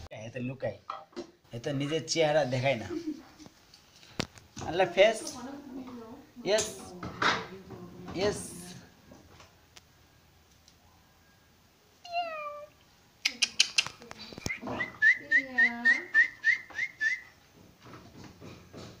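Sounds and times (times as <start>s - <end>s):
cat meowing: 12.0s - 12.8s
high whistled chirps: 14.5s - 17.4s.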